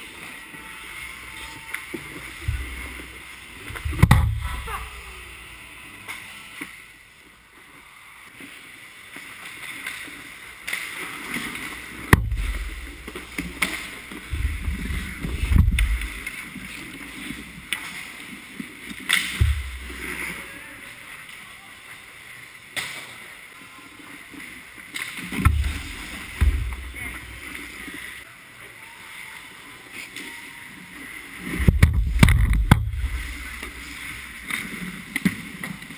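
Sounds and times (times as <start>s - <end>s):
low thumps against net and pads: 2.4s - 3.1s, 3.7s - 4.8s, 12.1s - 16.2s, 19.4s - 20.0s, 25.4s - 27.4s, 31.6s - 33.4s.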